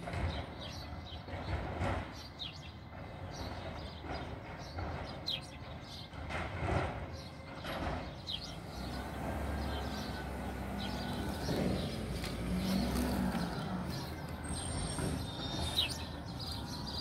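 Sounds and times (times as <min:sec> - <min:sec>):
vehicle engine rumble: 0:00.0 - 0:17.0
bird chirps: 0:07.2 - 0:17.0.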